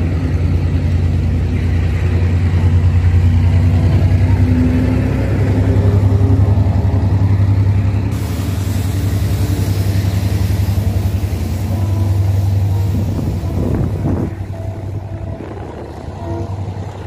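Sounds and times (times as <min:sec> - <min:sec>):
diesel locomotive engine throbbing: 0:00.0 - 0:17.0
bright hiss: 0:08.1 - 0:15.0.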